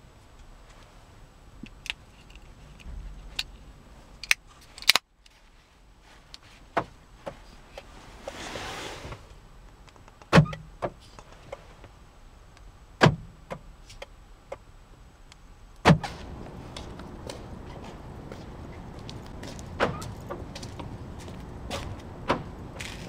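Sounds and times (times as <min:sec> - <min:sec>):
sharp plastic snaps: 0:04.2 - 0:05.1.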